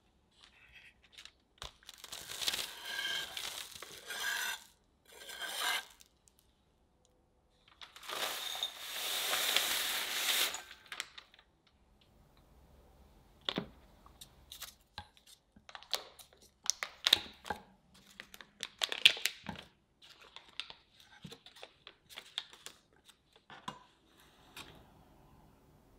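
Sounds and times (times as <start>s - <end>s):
chocolate shavings scraping on board: 2.5s - 6.0s
shavings pouring into glass bowl: 8.0s - 10.8s.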